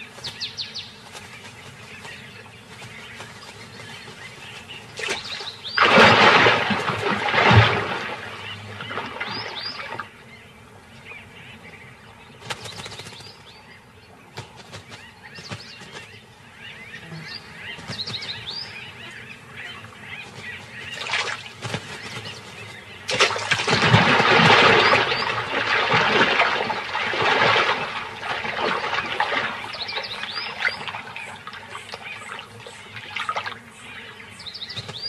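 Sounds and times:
birds chirping: 0:00.0 - 0:35.0
loud water splash: 0:05.0 - 0:10.0, 0:23.1 - 0:29.8
water churning: 0:05.0 - 0:10.1, 0:23.1 - 0:33.6.

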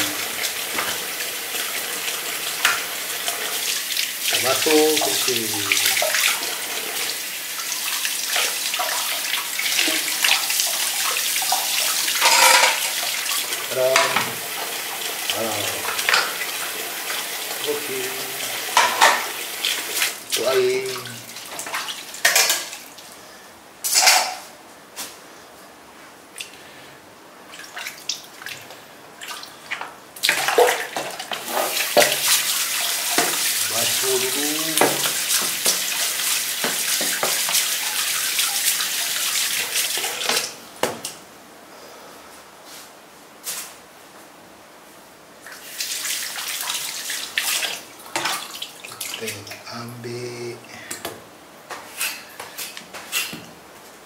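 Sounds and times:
tap water splashing in sink: 0:07.9 - 0:14.5, 0:15.3 - 0:17.6, 0:18.7 - 0:20.2, 0:29.3 - 0:41.2, 0:45.5 - 0:49.6.

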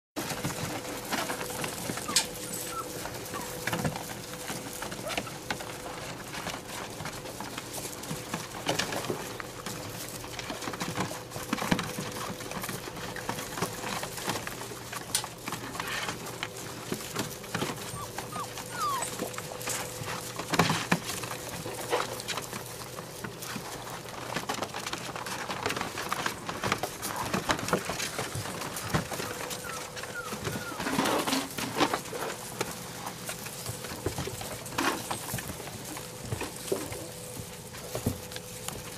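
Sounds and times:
puppy squeaks: 0:02.0 - 0:03.6, 0:17.8 - 0:19.4, 0:29.6 - 0:31.0.

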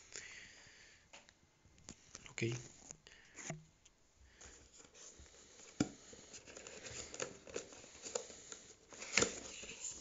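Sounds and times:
paper rustling: 0:04.7 - 0:10.0.

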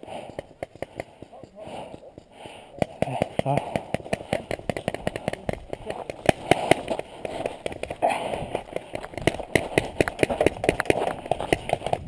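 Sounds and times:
footsteps running on gravel: 0:02.8 - 0:12.0.

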